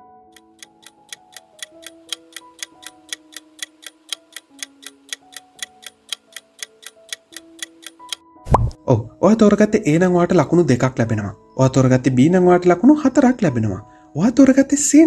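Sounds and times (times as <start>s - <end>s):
soft slow melody: 0.0s - 9.4s
clock ticking: 0.4s - 8.7s.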